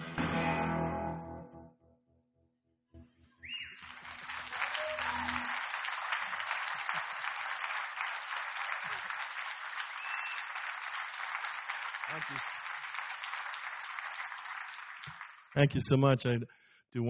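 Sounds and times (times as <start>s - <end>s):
acoustic guitar chord ringing: 0.0s - 1.8s
rising whistle from crowd: 3.4s - 5.6s, 9.8s - 10.6s
audience applause: 3.5s - 15.7s.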